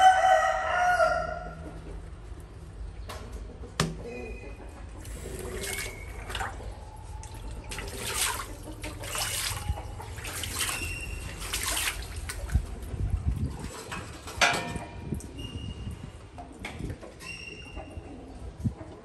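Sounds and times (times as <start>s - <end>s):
water splashing and trickling: 5.0s - 14.4s.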